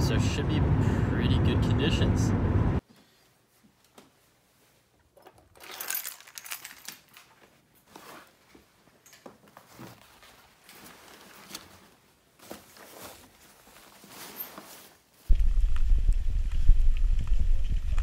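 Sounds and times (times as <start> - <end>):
fabric rustling: 6.7 - 15.3.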